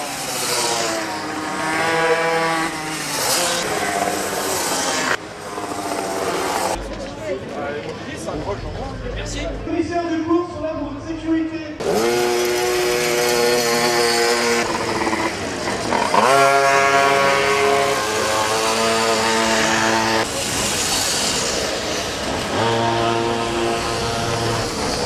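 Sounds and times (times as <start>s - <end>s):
pocket bike engines revving: 0.0s - 6.8s, 11.8s - 25.0s.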